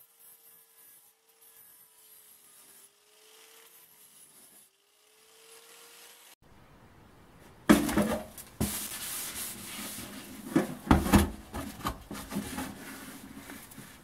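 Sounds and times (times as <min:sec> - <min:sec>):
gloves scraping metal: 0:03.6 - 0:04.7, 0:07.9 - 0:14.0
metal box clanking: 0:07.7 - 0:08.4
knock on metal box: 0:07.7 - 0:08.7.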